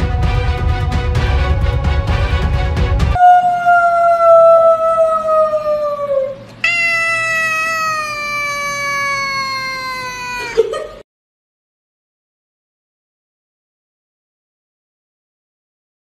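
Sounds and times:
cat meowing: 6.6 - 10.6.

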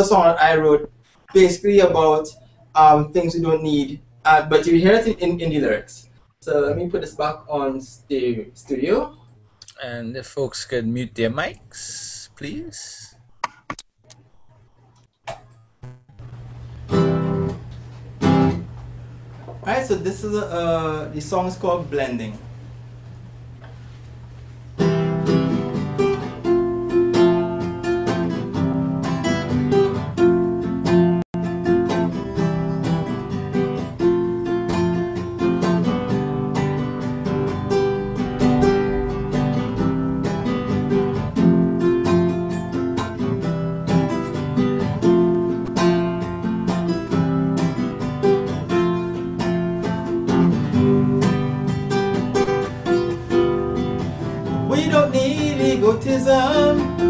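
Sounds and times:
acoustic guitar strumming: 15.4 - 20.6, 24.8 - 57.0.

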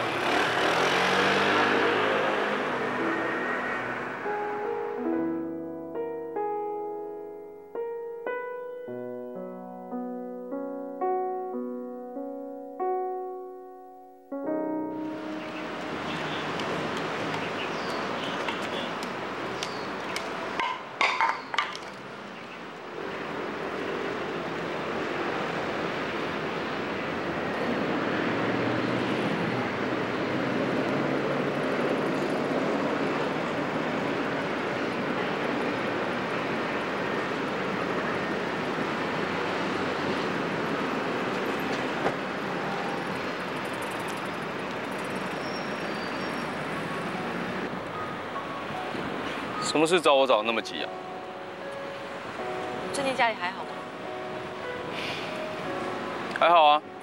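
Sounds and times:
outdoor background noise: 0.0 - 8.5, 14.5 - 57.0
street traffic noise: 0.0 - 57.0
clatter of sharp knocks: 20.6 - 22.0.

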